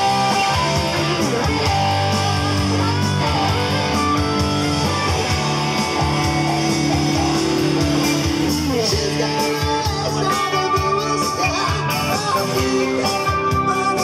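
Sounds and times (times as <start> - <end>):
electric guitar note sliding down: 0.0 - 8.8
live band playing: 0.0 - 14.0.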